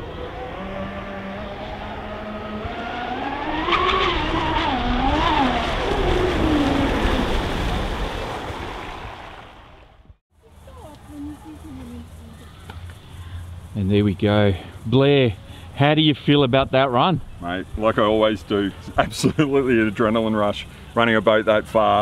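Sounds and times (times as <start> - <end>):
high-pitched boat motor whine: 0.0 - 8.8
rushing water: 4.3 - 10.2.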